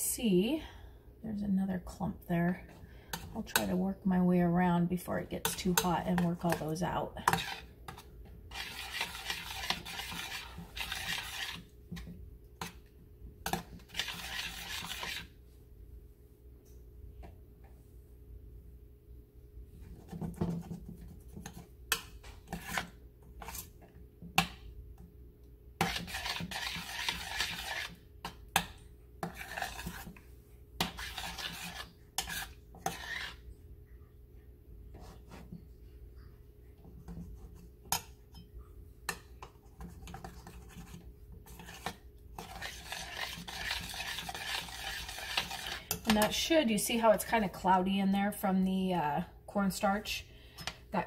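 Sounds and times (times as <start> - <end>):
spoon scraping saucepan: 2.4 - 3.9, 5.0 - 12.8, 13.4 - 15.4, 20.1 - 23.8, 25.8 - 30.2, 30.8 - 33.5, 39.1 - 47.7.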